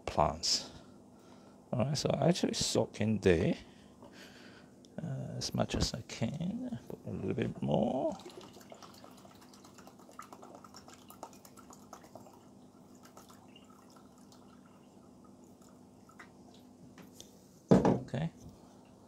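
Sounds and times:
low steady hum: 0.0 - 19.0
liquid pouring into water: 8.0 - 16.7.

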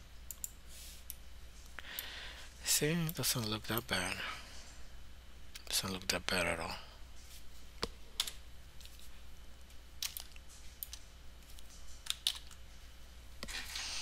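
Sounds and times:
faint low hum: 0.0 - 14.0
keyboard and mouse clicks: 10.0 - 12.6.

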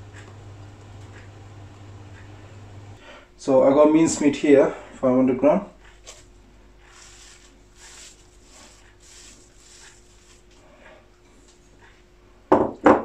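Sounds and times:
faint steady hum: 0.0 - 12.5
soft squishing of meat: 5.8 - 11.0.

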